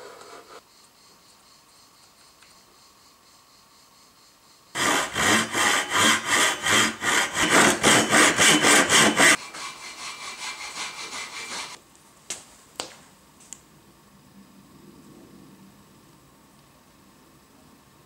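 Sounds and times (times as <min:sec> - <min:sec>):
hand saw cutting wood: 0:04.8 - 0:11.8.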